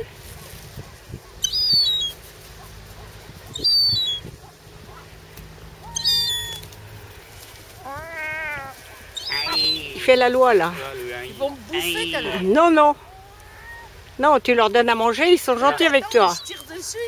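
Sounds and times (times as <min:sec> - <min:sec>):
gulls mewing calls: 0:01.2 - 0:07.1, 0:07.7 - 0:14.1.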